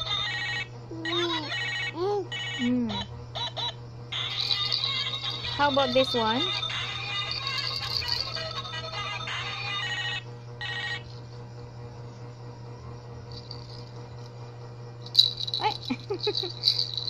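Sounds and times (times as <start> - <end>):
toy phone electronic tune: 0.0 - 0.6, 3.4 - 11.1
baby rattle clattering: 4.3 - 6.3, 7.1 - 8.6, 15.1 - 17.0.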